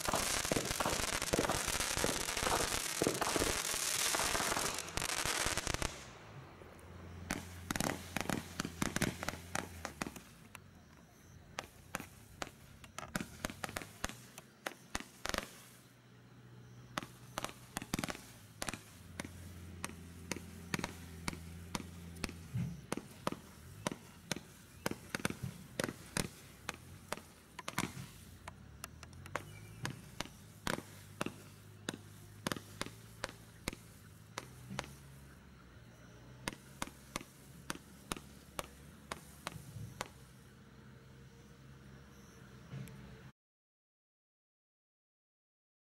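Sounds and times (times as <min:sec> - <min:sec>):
firework barrage bangs: 0:00.0 - 0:06.4, 0:07.2 - 0:10.4, 0:11.6 - 0:15.8, 0:17.0 - 0:28.3, 0:29.3 - 0:35.0.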